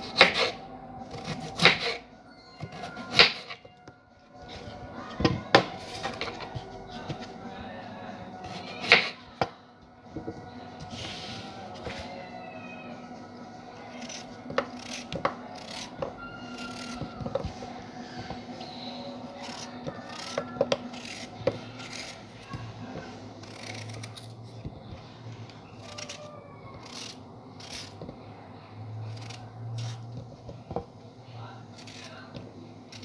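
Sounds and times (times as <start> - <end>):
knife slicing raw potato: 0.0 - 2.0, 8.4 - 9.2, 13.9 - 17.2
faint low hum: 3.7 - 33.0.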